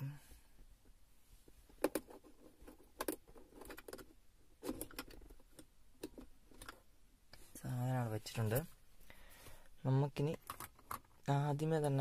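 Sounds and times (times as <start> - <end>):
small plastic clicks and knocks: 1.8 - 6.8.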